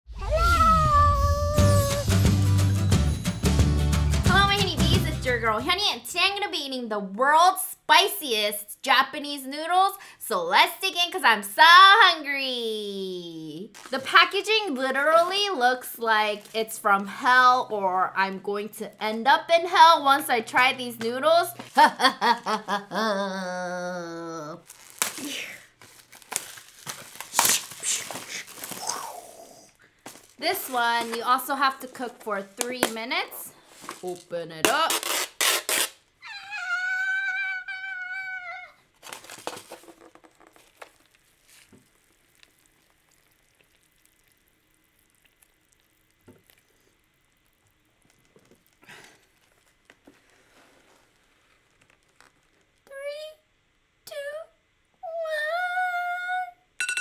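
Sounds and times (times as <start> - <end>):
woman squealing: 0.1 - 2.2, 36.2 - 38.8
plastic packaging rustling: 13.7 - 15.4, 24.6 - 29.2, 29.9 - 36.1, 38.9 - 43.2, 48.0 - 52.8
plastic wrapping crinkling and tearing: 13.7 - 15.4, 24.6 - 36.1, 38.9 - 52.9
person laughing: 21.6 - 24.0.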